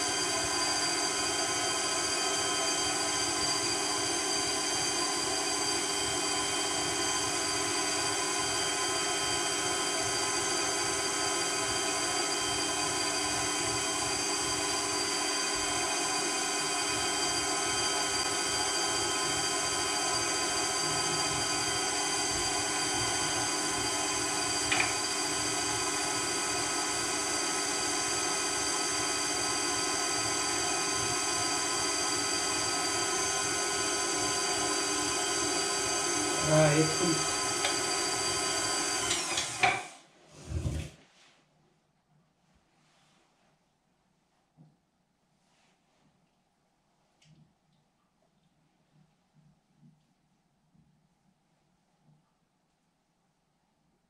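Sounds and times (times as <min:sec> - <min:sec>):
meat grinder motor whine: 0:00.0 - 0:40.9.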